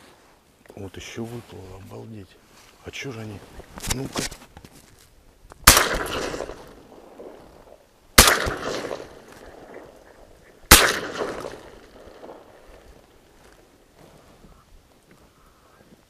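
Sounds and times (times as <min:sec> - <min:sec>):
shotgun shots with echo: 0:05.6 - 0:06.8, 0:08.2 - 0:12.8.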